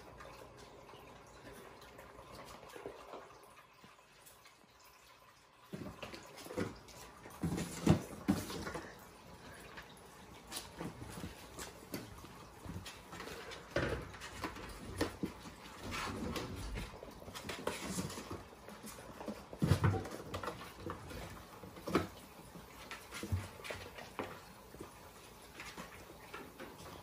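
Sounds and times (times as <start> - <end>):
kittens' paws pattering: 5.7 - 27.0.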